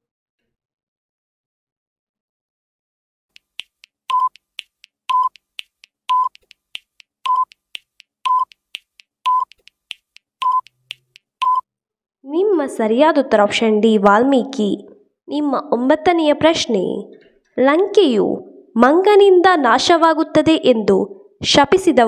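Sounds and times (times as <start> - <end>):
clock-like ticks: 3.3 - 11.6
short beeps: 4.1 - 4.4, 5.1 - 5.4, 6.1 - 6.4, 7.3 - 7.5, 8.3 - 8.6, 9.3 - 9.5, 10.4 - 10.8, 11.4 - 11.6.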